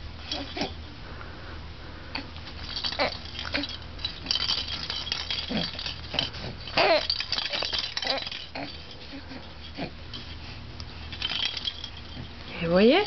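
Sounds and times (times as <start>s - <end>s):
bead rattle ball rattling: 2.5s - 10.4s, 11.0s - 12.4s.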